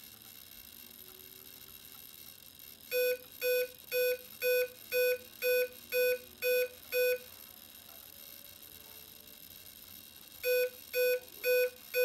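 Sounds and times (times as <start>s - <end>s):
short pitched motor beeps: 2.9s - 7.3s, 10.4s - 12.0s.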